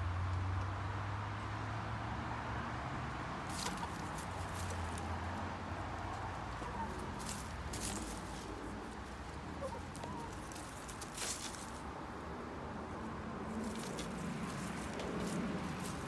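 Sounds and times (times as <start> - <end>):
hens scratching in dry leaves: 3.5 - 16.0
hens clucking softly: 6.4 - 10.8.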